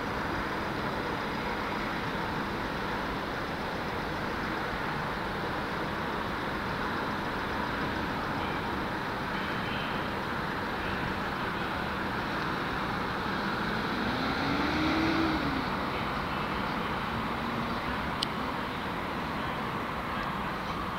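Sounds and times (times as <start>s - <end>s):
road traffic noise: 0.0s - 20.9s
vehicle engine revving: 13.4s - 15.9s.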